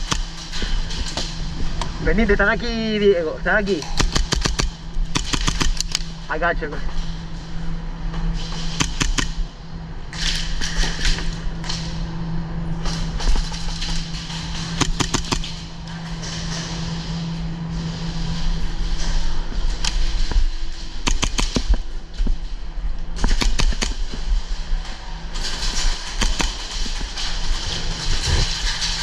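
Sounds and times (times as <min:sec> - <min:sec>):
low hum: 0:00.0 - 0:29.0
airsoft gun shots: 0:03.8 - 0:06.0, 0:08.8 - 0:09.4, 0:14.8 - 0:15.5, 0:21.0 - 0:21.7, 0:23.2 - 0:24.0.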